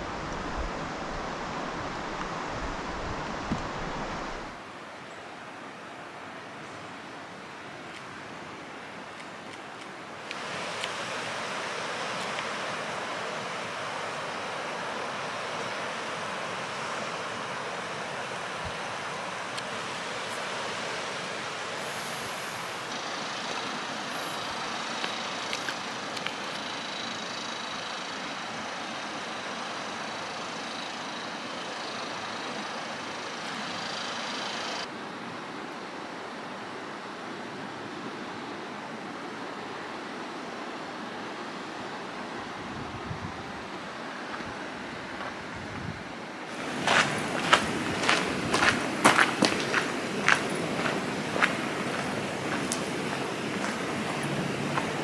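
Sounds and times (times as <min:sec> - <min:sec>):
wind rumbling on microphone: 0:00.0 - 0:04.6, 0:42.5 - 0:55.0
water rushing over falls: 0:00.0 - 0:55.0.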